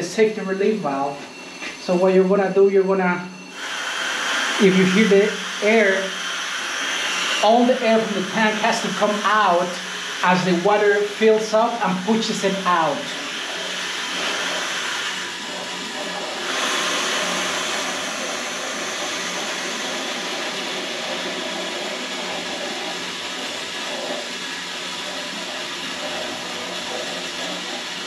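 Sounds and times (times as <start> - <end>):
air hissing from relief valve: 3.5 - 11.5.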